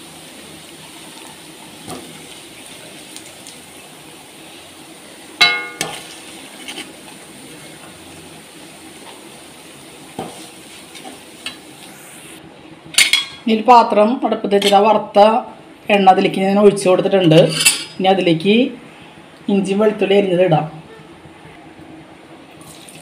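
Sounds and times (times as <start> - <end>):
meat sizzling in oil: 0.0 - 12.4
metal spoon clinking on pan: 5.4 - 6.0.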